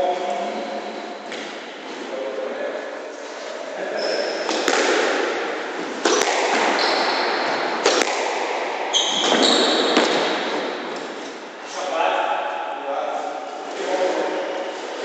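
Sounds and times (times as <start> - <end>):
shoes squeaking on wooden floor: 3.8 - 4.6, 6.6 - 7.6, 8.9 - 10.1
squash ball cracking off racket: 4.5 - 10.6.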